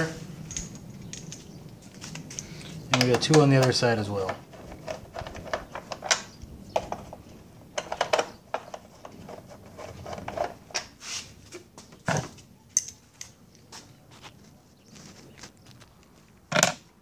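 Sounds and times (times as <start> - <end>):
rustling: 0.0 - 17.0
metal clinks: 0.4 - 2.7.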